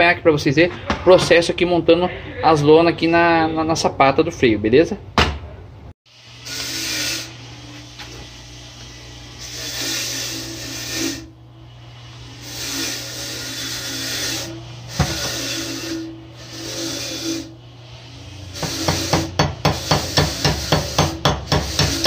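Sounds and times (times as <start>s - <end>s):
steady low hum: 5.4s - 21.6s
scraping on brake lining: 12.4s - 17.6s.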